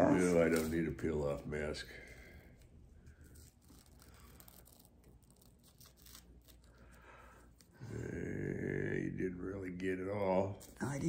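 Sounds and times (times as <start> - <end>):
face mask peeling crackle: 2.6 - 7.8.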